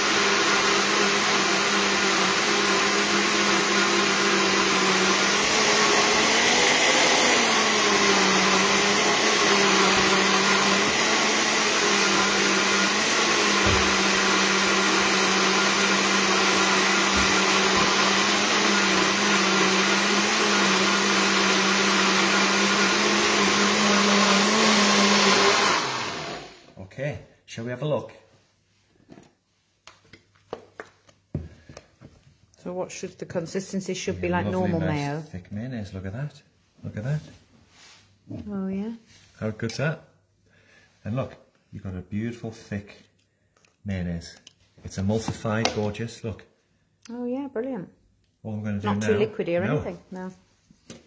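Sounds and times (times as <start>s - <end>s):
blender running: 0.0s - 26.8s, 34.2s - 35.1s, 48.9s - 49.9s.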